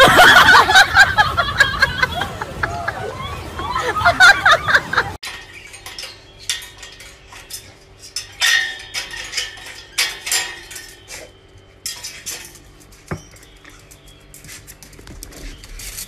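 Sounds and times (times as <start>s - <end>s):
metal gate latch rattling: 5.2s - 14.6s.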